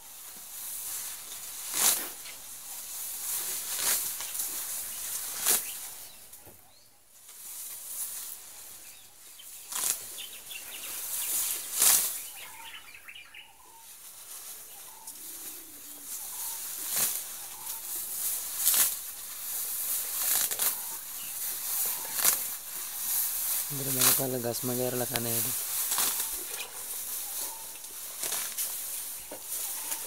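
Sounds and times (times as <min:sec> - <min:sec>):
elephant tearing grass: 0:00.2 - 0:06.0, 0:09.5 - 0:12.7, 0:14.0 - 0:30.0
sharp rustling swishes: 0:00.5 - 0:06.0, 0:10.9 - 0:12.4, 0:14.1 - 0:24.3, 0:25.4 - 0:30.0.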